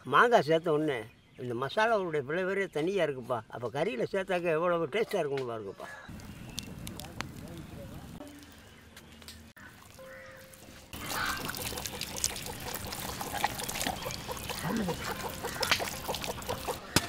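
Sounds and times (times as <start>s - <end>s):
hands squelching wet paste: 9.6s - 17.0s.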